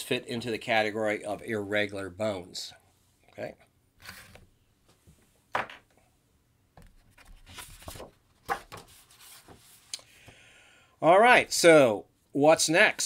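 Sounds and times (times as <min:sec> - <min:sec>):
objects rubbing and rustling: 0:04.0 - 0:05.3, 0:06.8 - 0:09.9.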